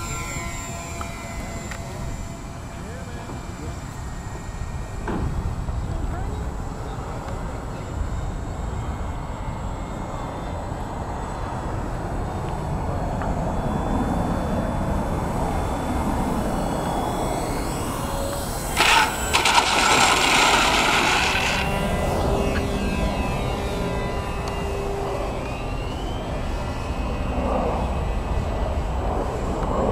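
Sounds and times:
model plane motors whining: 0.0 - 29.9
wind rumble on microphone: 19.7 - 29.9.

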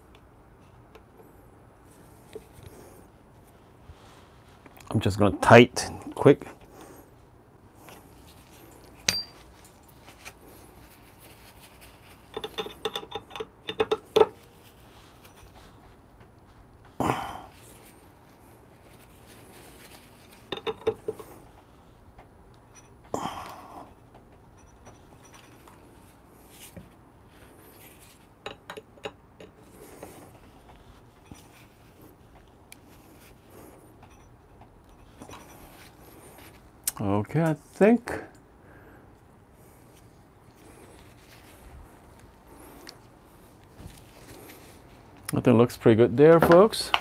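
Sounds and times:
scraping rustles: 7.8 - 12.8, 17.6 - 21.9
screwdriver clinking on metal screws: 8.8 - 9.8, 12.2 - 14.5, 20.4 - 21.3.

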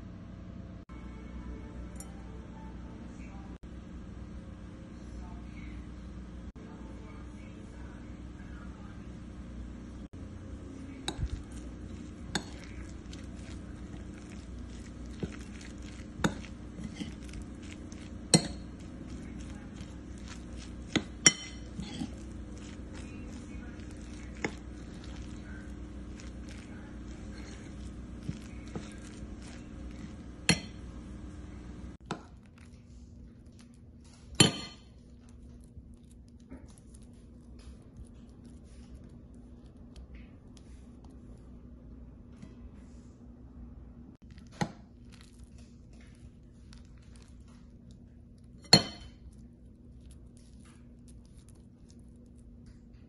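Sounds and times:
low hum: 0.0 - 44.4
spoon stirring soft mash: 10.2 - 41.6, 44.2 - 53.0
metal spoon clinking bowl: 14.2 - 25.4, 27.8 - 30.8.

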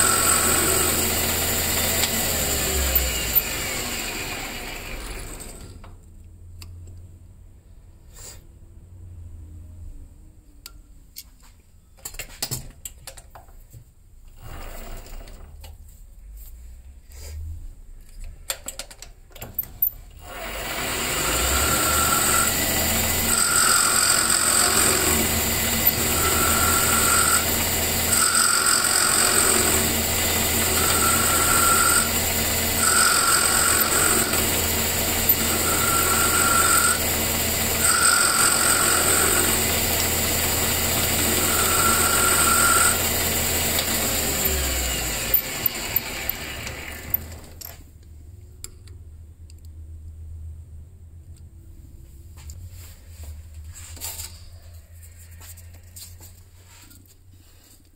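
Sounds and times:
metal lathe running: 0.0 - 5.6, 20.2 - 47.5.

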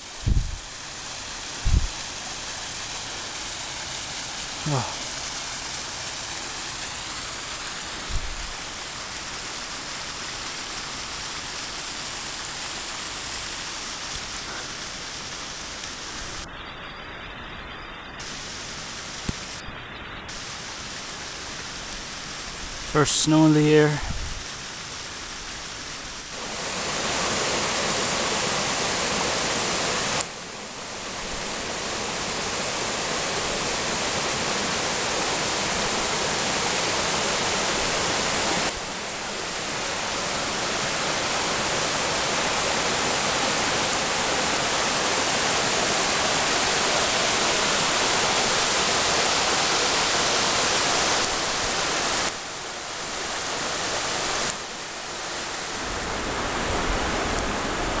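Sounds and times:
stream rushing over rocks: 0.0 - 16.5, 18.2 - 58.0.

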